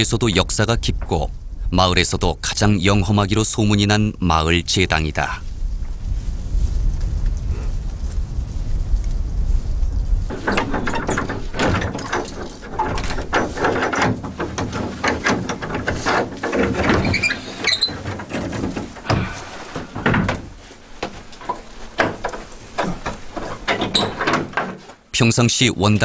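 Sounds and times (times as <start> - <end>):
wooden door creaking and knocking: 0.0 - 1.3, 10.3 - 25.1.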